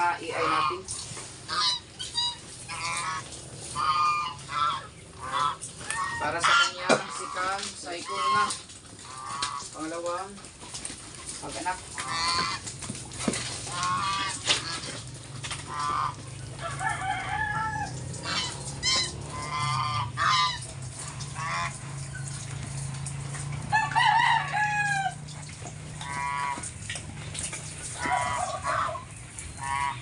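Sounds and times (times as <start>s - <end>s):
chickens clucking: 0.1s - 30.0s
rooster crowing: 16.5s - 18.4s, 23.7s - 25.2s.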